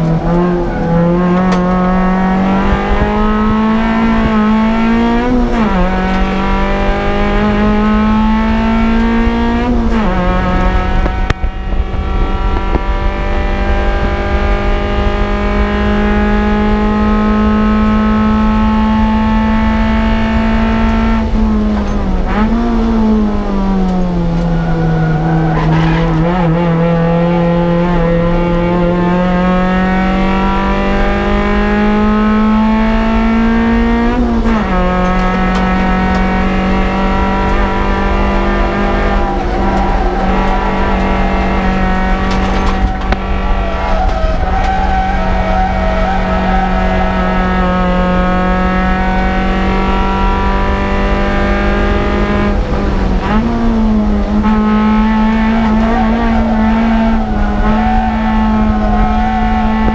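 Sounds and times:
car engine revving high: 0.0s - 59.9s.

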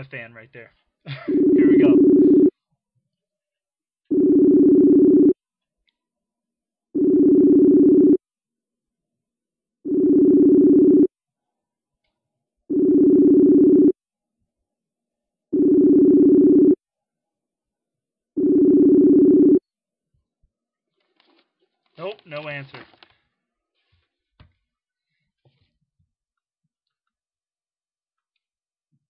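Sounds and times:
low ringback tone: 1.3s - 2.5s.

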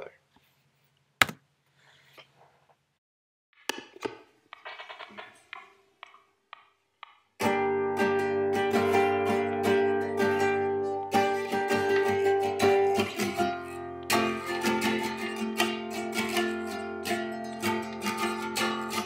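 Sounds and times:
strummed guitar: 7.4s - 19.0s.

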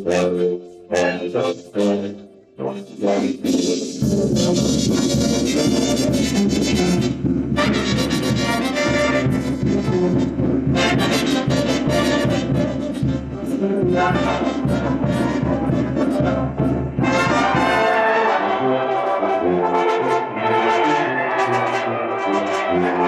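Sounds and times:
trumpets and trombones: 0.0s - 23.0s
rhythmic beat: 3.2s - 18.0s.

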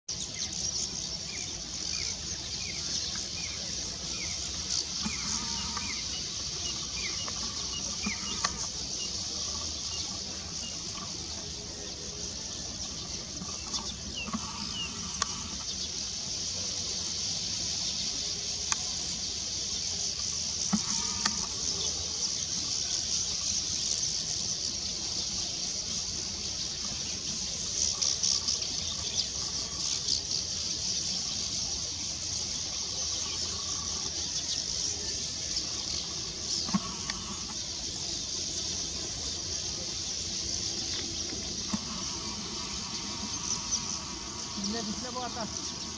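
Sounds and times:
bird chirping: 0.1s - 16.7s, 17.6s - 45.9s
high-pitched insect chorus: 0.1s - 45.9s
sharp clicks: 8.0s - 8.7s, 41.0s - 44.6s.

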